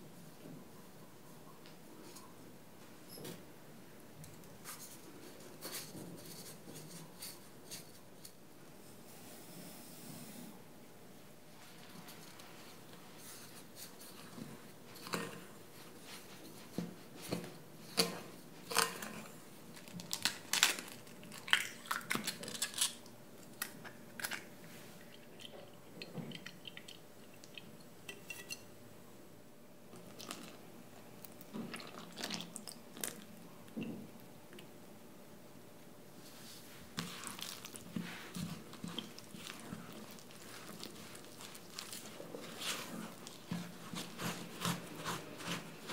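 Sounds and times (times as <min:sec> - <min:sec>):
wooden spoon stirring in glass bowl: 0:36.8 - 0:45.9.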